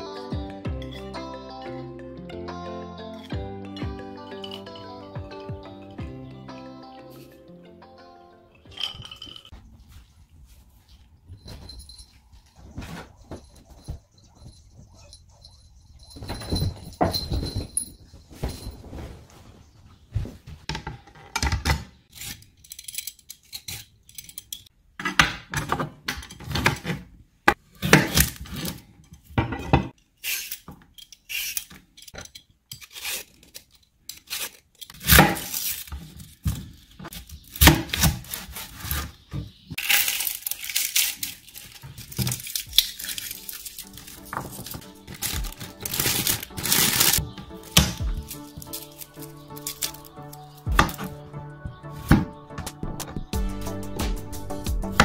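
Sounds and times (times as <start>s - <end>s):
rustling: 8.8s - 20.7s, 32.8s - 51.2s
peeler scraping cucumber: 22.1s - 24.6s, 30.0s - 39.2s.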